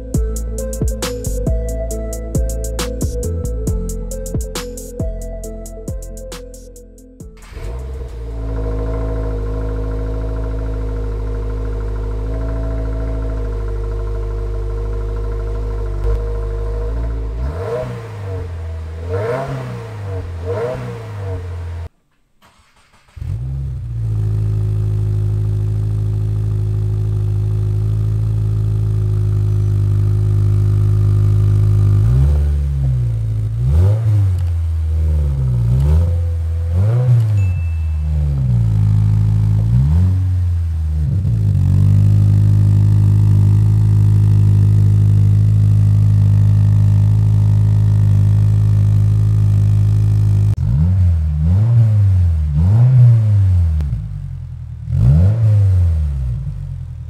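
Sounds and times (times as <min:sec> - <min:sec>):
car engine idling and revving: 0:00.0 - 0:57.0.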